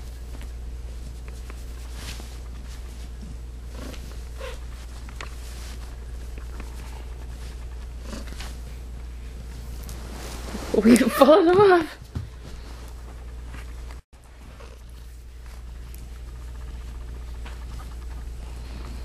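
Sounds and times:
hand rustling on fur: 0.0 - 13.8
cat purring: 1.5 - 11.0, 14.4 - 19.0.

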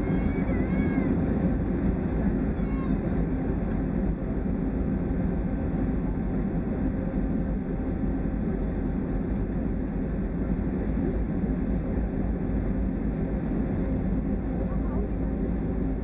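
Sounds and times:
airliner cabin engine rumble: 0.0 - 16.0.

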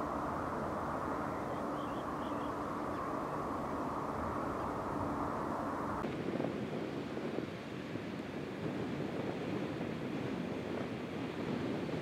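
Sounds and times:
faint hum: 0.0 - 6.0
outdoor background rumble: 0.0 - 12.0
wind: 0.0 - 12.0.

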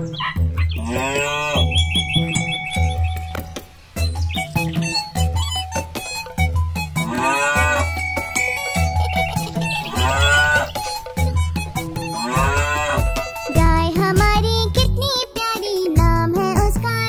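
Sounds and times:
children's music with bass beat: 0.0 - 17.0
cow mooing: 0.8 - 2.0, 6.9 - 8.4, 9.0 - 11.1, 12.0 - 13.5.

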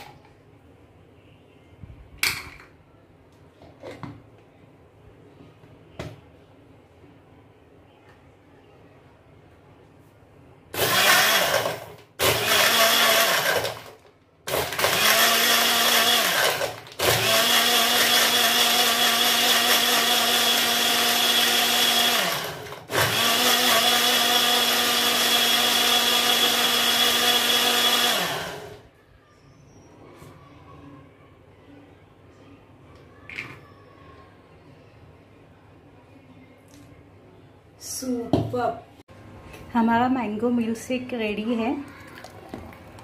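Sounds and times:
blender motor whirring: 10.8 - 28.8.

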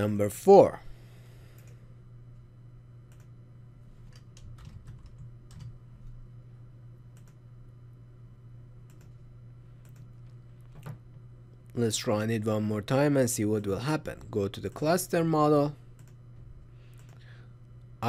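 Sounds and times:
low steady hum: 0.0 - 18.0
keyboard and mouse clicks: 7.1 - 7.4, 8.9 - 9.2, 9.8 - 11.0.

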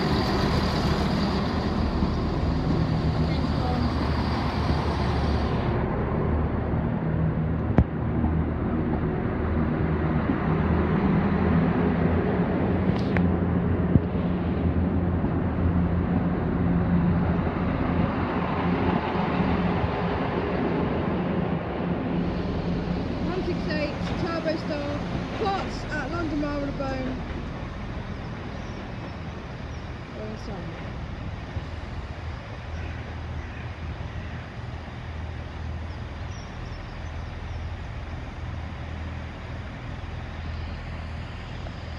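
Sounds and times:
diesel engines droning: 0.0 - 41.9
train rumbling: 0.0 - 41.9.

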